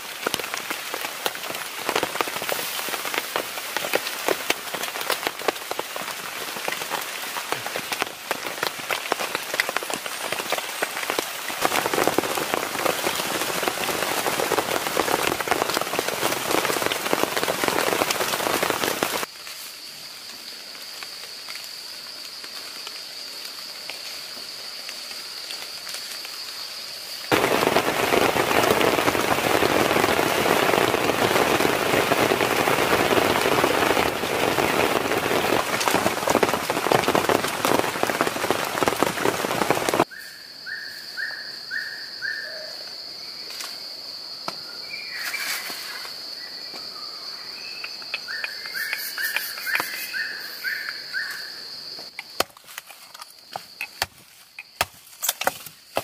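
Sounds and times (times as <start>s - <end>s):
heavy rain downpour: 0.0s - 40.1s
high insect drone: 4.9s - 56.0s
rapid chirping calls: 47.2s - 51.6s.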